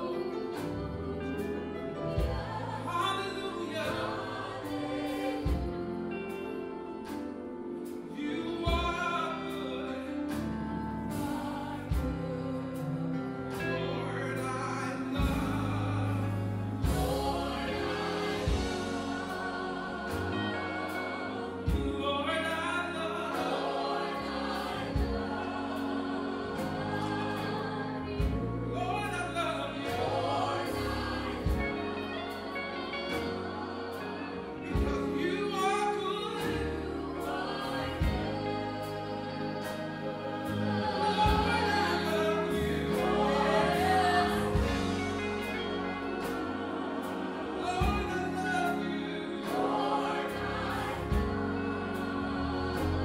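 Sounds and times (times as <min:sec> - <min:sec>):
choir singing gospel song: 0:00.0 - 0:53.0
instrumental accompaniment with beat: 0:03.5 - 0:13.9, 0:15.1 - 0:28.7.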